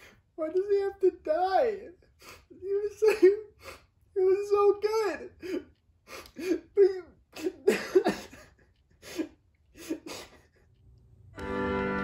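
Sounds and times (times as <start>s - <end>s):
noisy breaths: 0.0s - 0.3s, 5.4s - 6.7s
man sobbing: 0.0s - 10.8s.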